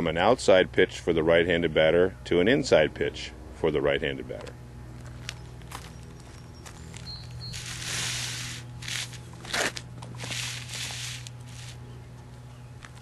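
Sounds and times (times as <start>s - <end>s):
mat scraping across asphalt: 6.7s - 11.8s.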